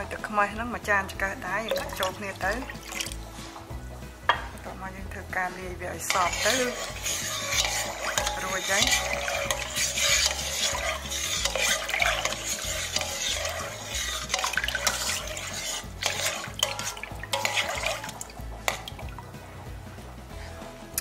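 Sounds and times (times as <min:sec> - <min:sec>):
liquid swishing from stirring: 0:01.7 - 0:04.0, 0:05.6 - 0:20.6
spoon clinking against pot: 0:06.1 - 0:19.1.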